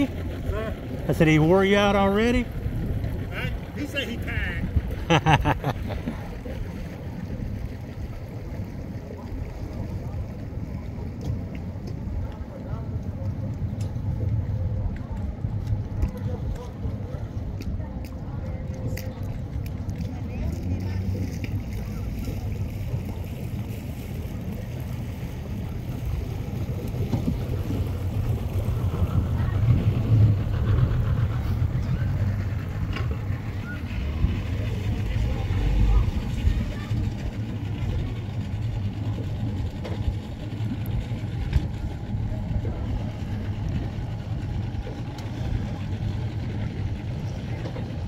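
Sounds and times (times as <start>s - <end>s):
boat engine idling: 0.0s - 48.0s
wind on microphone: 2.4s - 48.0s.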